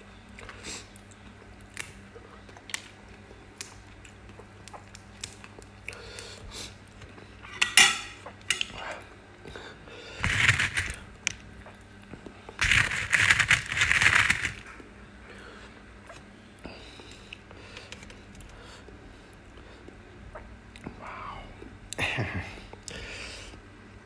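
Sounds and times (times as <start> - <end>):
metal spoon clinking on dish: 7.5 - 8.7
crisp crunching of greens: 10.2 - 11.8, 12.6 - 14.8.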